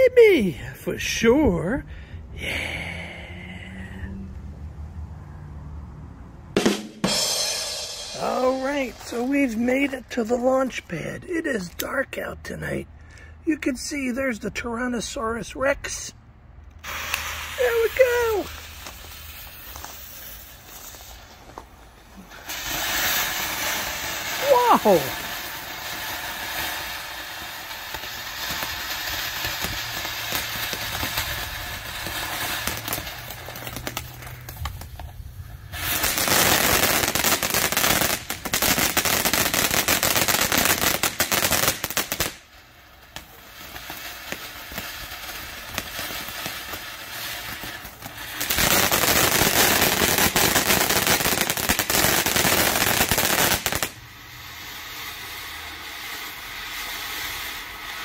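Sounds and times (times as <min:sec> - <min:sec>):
firework fountain hissing: 0:07.0 - 0:12.0, 0:16.7 - 0:58.0
loud dense crackling: 0:08.1 - 0:10.8, 0:16.9 - 0:21.1.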